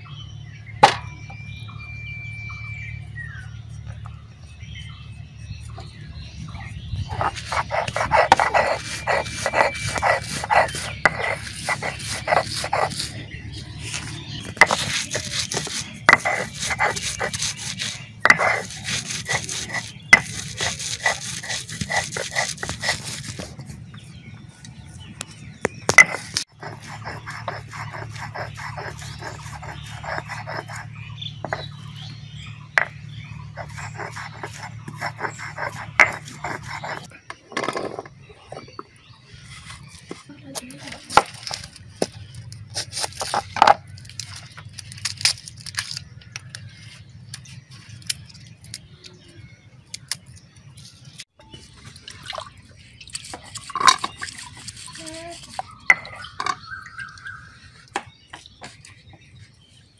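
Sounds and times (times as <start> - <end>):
stone roller grinding on stone: 7.0 - 23.8, 25.9 - 32.0, 32.7 - 38.8, 39.6 - 46.8, 53.2 - 56.6
knife cutting meat on board: 7.2 - 13.1.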